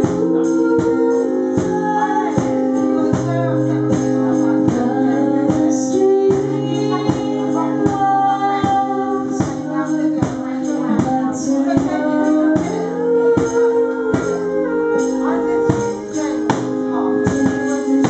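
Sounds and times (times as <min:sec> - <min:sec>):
person singing: 0:00.0 - 0:18.0
strummed acoustic guitar: 0:00.0 - 0:18.0.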